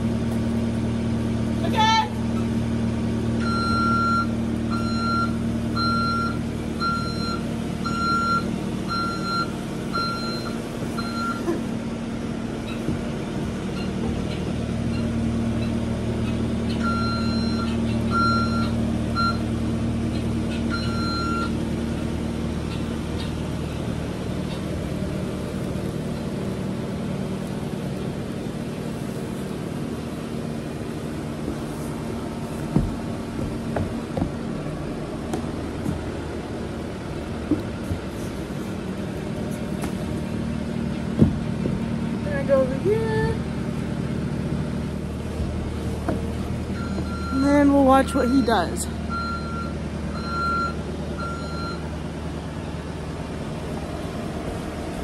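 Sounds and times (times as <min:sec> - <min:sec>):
skid steer engine running: 0:00.0 - 0:55.0
backup alarm beeping: 0:03.4 - 0:11.5, 0:16.8 - 0:19.5, 0:20.7 - 0:21.6, 0:46.7 - 0:51.8.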